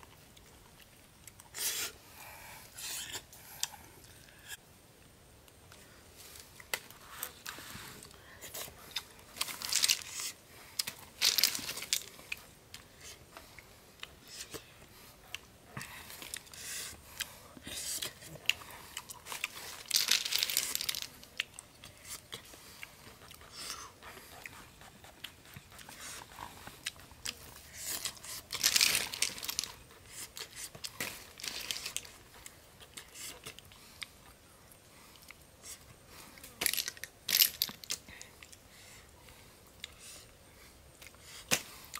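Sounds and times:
snail shells clicking and crunching: 8.0s - 12.9s, 17.8s - 22.5s, 26.7s - 32.2s, 36.4s - 38.6s.

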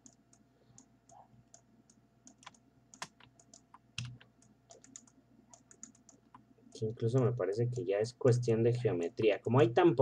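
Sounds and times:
keyboard and mouse clicking: 0.0s - 6.5s.

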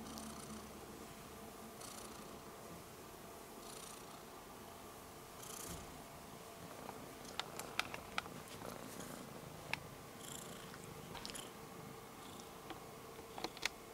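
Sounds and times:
kitten purring: 0.0s - 0.7s, 1.8s - 2.4s, 3.6s - 4.3s, 6.6s - 13.7s.

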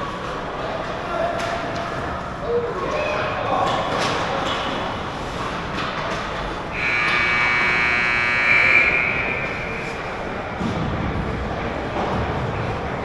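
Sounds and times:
rink background noise: 0.0s - 13.0s
rink buzzer: 6.8s - 9.9s.

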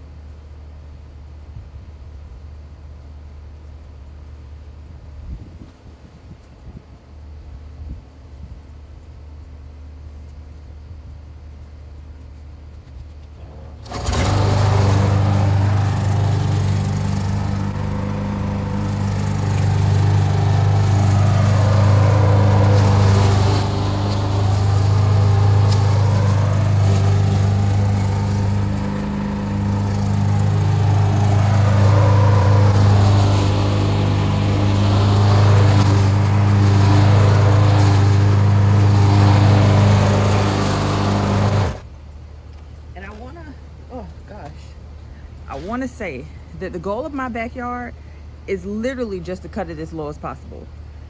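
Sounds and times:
lawn mower engine running: 13.6s - 41.9s.

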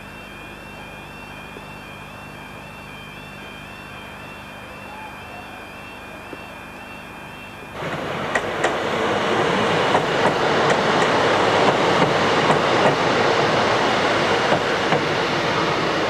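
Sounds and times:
train wheels rumbling: 7.7s - 16.0s
rail joint clicks: 7.8s - 15.2s.

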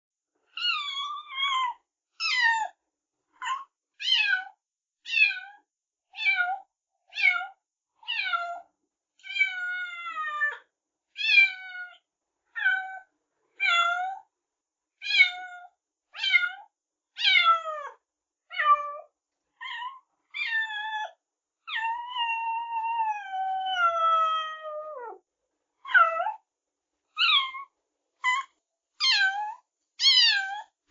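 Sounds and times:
kittens meowing: 21.7s - 25.2s, 25.9s - 26.4s, 27.2s - 30.7s.

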